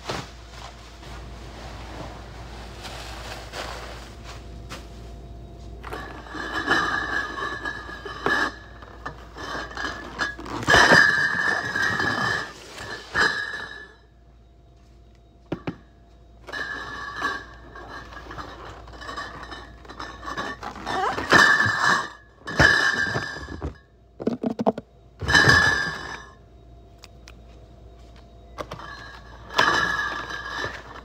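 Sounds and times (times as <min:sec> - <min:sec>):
glass bottles clinking in cartons: 0:05.8 - 0:14.1, 0:15.5 - 0:15.8, 0:16.4 - 0:26.4, 0:28.6 - 0:31.0.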